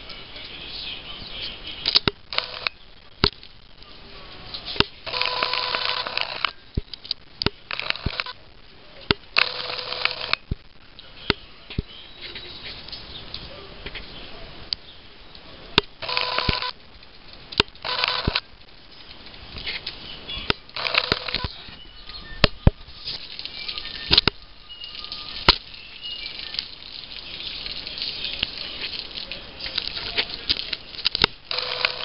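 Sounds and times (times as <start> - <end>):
sharp clicks: 1.8 - 3.6, 4.8 - 8.4, 9.1 - 10.7, 14.7 - 16.8, 17.4 - 18.5, 19.1 - 26.8, 29.6 - 32.0
camera zoom motor whining: 5.1 - 6.5, 16.0 - 16.7, 20.8 - 21.5, 31.5 - 32.0.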